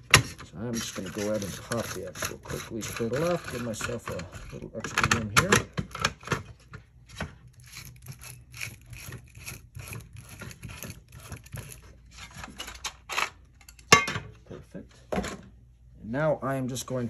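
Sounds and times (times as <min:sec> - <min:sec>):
plastic parts rubbing: 0:00.0 - 0:13.3.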